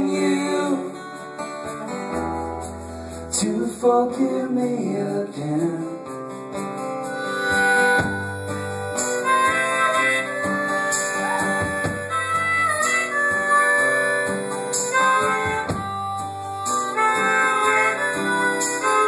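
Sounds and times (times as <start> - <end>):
strummed acoustic guitar: 0.0 - 19.0
harmonica bending notes: 7.0 - 19.0
low keyboard bass notes: 7.6 - 18.7.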